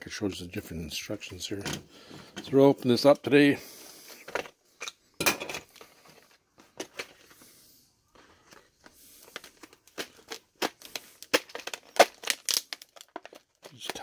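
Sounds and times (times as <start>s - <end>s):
stiff plastic packaging crackling: 8.2s - 14.0s.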